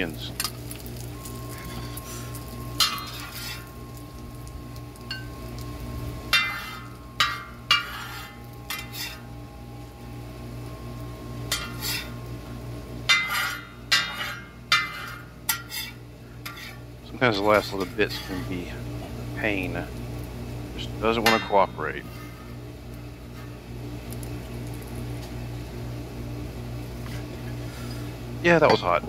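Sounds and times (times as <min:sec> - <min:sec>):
metal spatula scraping wok: 0:01.3 - 0:03.8, 0:06.3 - 0:09.3, 0:11.5 - 0:12.2, 0:13.1 - 0:18.7.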